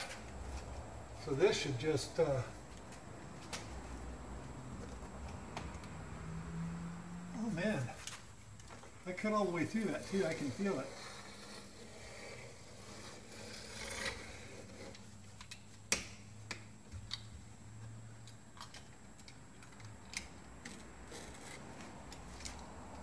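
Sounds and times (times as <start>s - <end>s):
knife scraping rubber seal: 10.0s - 15.1s.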